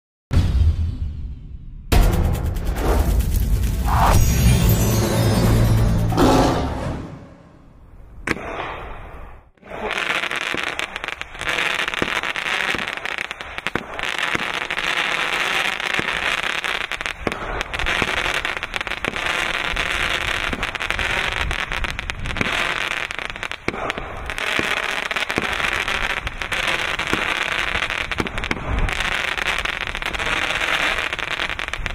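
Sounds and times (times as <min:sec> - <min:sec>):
booming intro sound effect: 0:00.3 - 0:08.0
fireworks crackling and popping: 0:02.0 - 0:05.3, 0:09.5 - 0:31.9.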